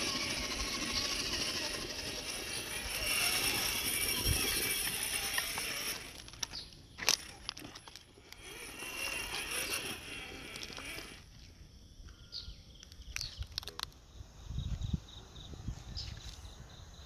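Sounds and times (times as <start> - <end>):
toy car motor whining: 0.0 - 11.5.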